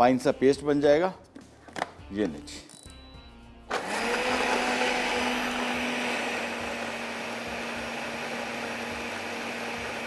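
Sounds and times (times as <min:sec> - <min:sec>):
blender motor humming: 0:03.7 - 0:10.0.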